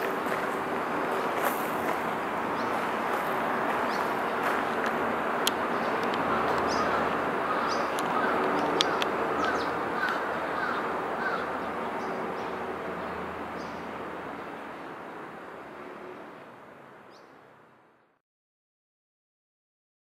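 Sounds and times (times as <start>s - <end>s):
outdoor background noise: 0.0s - 18.2s
crows cawing: 6.2s - 11.8s.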